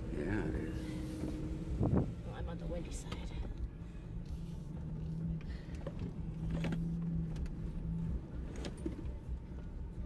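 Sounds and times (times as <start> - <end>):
car engine drone: 0.0 - 10.0
low rumble: 0.0 - 10.0.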